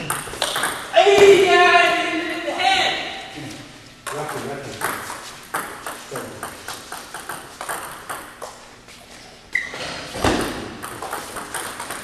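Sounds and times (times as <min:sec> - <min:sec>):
table tennis ball clicking: 0:04.8 - 0:08.5
brief high squeak: 0:09.5 - 0:10.0.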